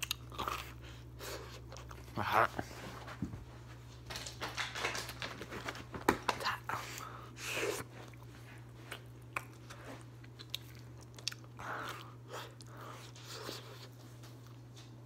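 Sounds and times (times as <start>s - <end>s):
person chewing pizza: 0.0s - 2.8s, 6.4s - 15.0s
low steady hum: 0.0s - 15.0s.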